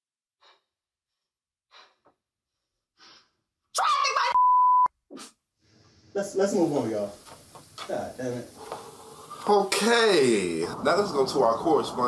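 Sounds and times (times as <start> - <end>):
censor bleep: 4.3 - 4.9
soft breaths: 8.5 - 9.6.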